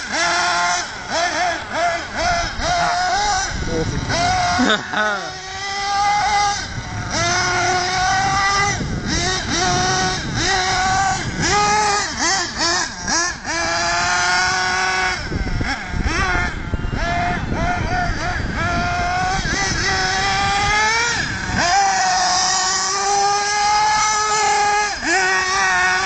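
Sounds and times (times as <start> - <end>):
rc car engine revving: 0.0 - 26.0.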